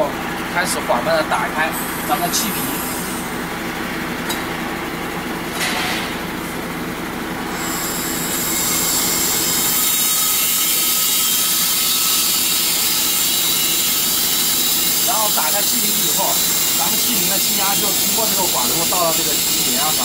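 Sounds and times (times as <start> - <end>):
low mechanical hum: 0.0 - 20.0
high-pressure gas hissing: 1.7 - 3.3, 7.5 - 20.0.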